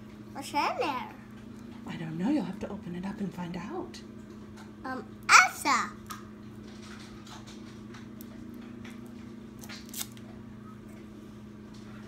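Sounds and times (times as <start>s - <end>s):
foil wrapper crinkling: 9.6s - 10.2s.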